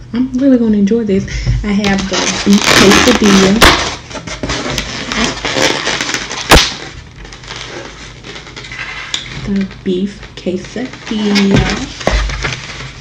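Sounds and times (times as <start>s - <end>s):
styrofoam rubbing and creaking: 1.7s - 9.5s, 10.7s - 13.0s
styrofoam lid snapping open: 6.4s - 6.8s.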